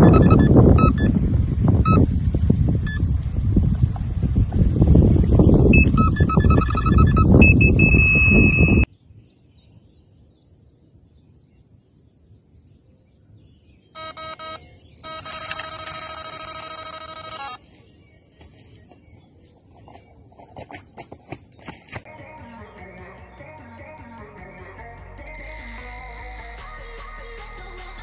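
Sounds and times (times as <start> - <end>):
electronic bite alarm beeping: 0.0 - 1.2, 1.8 - 2.1, 5.7 - 8.9, 14.0 - 18.9, 25.3 - 28.0
wind noise on microphone: 0.0 - 13.7.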